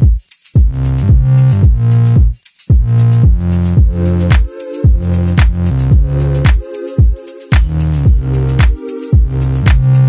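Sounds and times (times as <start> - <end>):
bass line: 0.0 - 6.6, 7.5 - 10.0
deep kick drums: 0.0 - 10.0
fast hi-hat pattern: 0.0 - 10.0
electronic music: 3.0 - 10.0.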